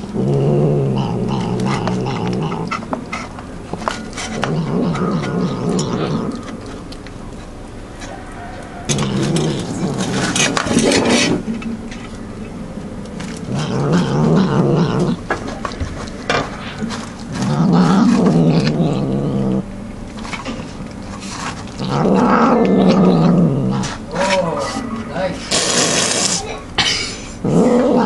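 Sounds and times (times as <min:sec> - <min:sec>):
cat growling: 0:00.0 - 0:03.3, 0:04.1 - 0:07.0, 0:08.0 - 0:11.4, 0:13.2 - 0:19.7, 0:21.4 - 0:26.6, 0:27.4 - 0:28.0
clicks of eating: 0:01.3 - 0:11.1.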